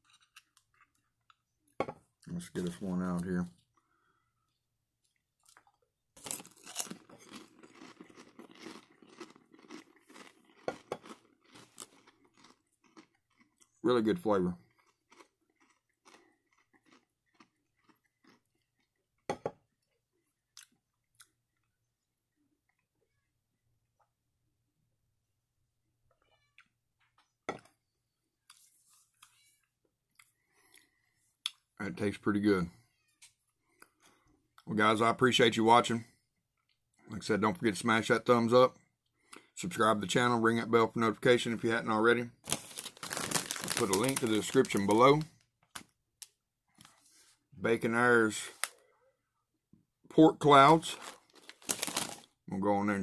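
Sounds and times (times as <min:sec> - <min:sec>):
crunchy food chewing: 0:04.5 - 0:13.8, 0:14.5 - 0:21.8, 0:42.4 - 0:45.8, 0:50.9 - 0:52.4.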